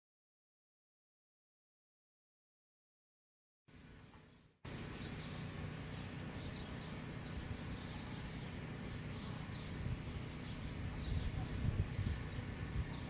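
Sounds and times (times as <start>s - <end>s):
small birds chirping: 3.7s - 13.0s
steady low rumble: 3.8s - 13.0s.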